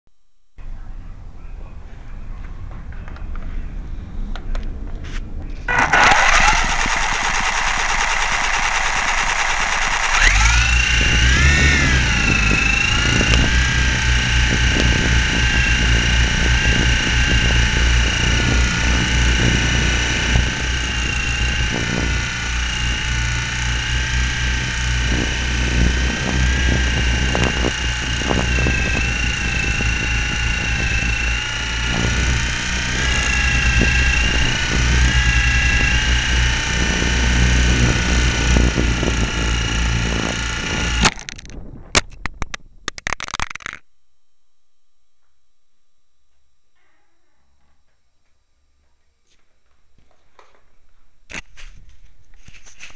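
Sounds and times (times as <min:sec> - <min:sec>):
wind rumbling on microphone: 0:00.6 - 0:43.1
model airplane motor whining: 0:05.6 - 0:41.5.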